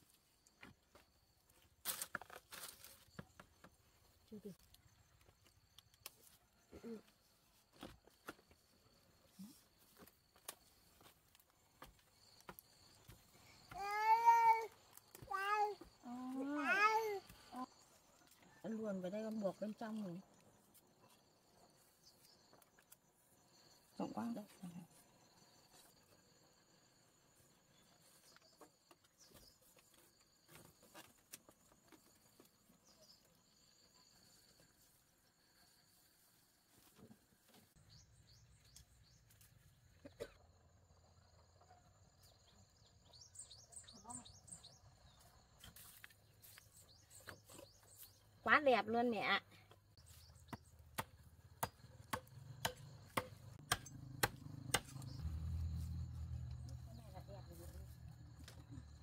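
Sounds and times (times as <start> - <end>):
bamboo strips clicking and rustling: 1.8 - 3.5
machete chopping bamboo: 50.5 - 55.2.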